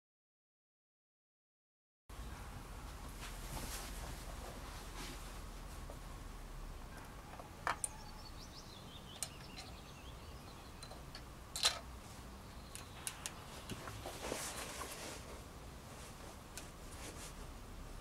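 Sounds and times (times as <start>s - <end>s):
faint bird song: 6.8s - 15.3s.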